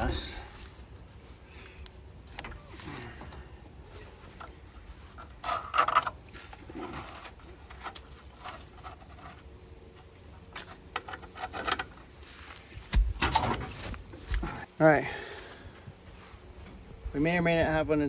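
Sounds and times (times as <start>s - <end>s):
battery cables clicking and scraping: 4.1s - 12.2s.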